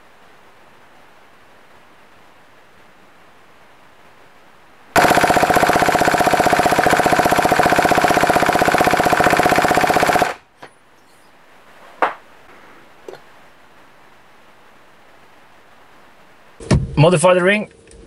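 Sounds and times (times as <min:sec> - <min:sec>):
engine spun over by drill: 0:05.0 - 0:10.4.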